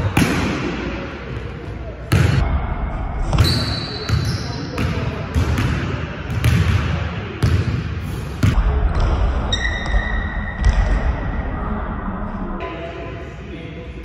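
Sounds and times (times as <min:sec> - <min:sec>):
sneaker squeaking on floor: 0:03.4 - 0:04.9, 0:09.5 - 0:10.4.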